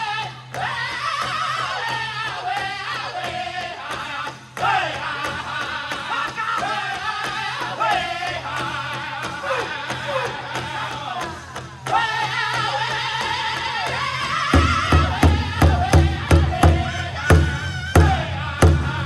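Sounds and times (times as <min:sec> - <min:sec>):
group singing high-pitched: 0:00.0 - 0:19.0
big drum beating: 0:13.1 - 0:19.0.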